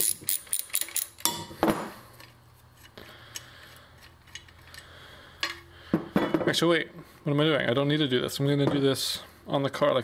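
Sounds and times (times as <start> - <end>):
metallic clicks of ratchet and bolt: 0.0 - 1.4.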